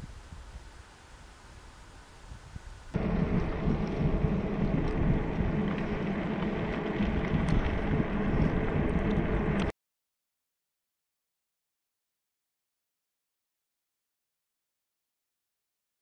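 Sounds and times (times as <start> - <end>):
wind buffeting microphone: 2.2 - 9.7
tyres rushing on asphalt: 3.0 - 9.7.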